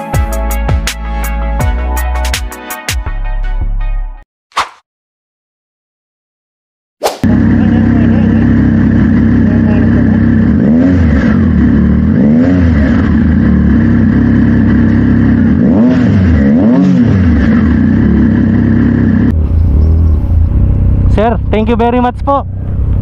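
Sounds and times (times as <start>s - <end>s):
motorcycle engine idling and revving: 7.2s - 23.0s.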